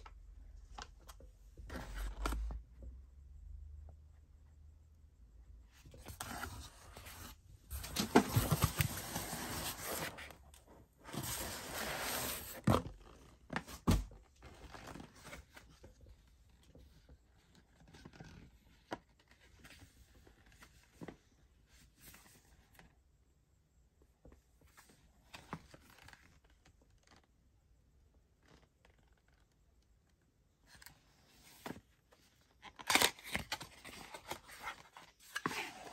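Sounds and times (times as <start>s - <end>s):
packaging crinkling and rustling: 32.6s - 35.9s.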